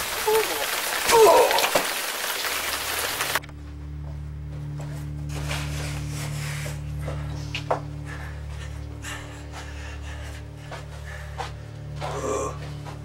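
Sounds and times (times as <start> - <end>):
low steady hum: 3.4 - 13.0.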